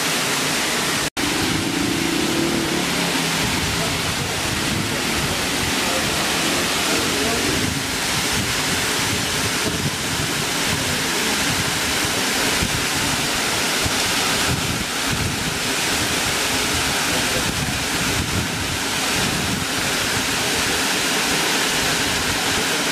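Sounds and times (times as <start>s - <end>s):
waterfall rushing: 0.0s - 22.9s
wind buffeting microphone: 3.3s - 19.8s.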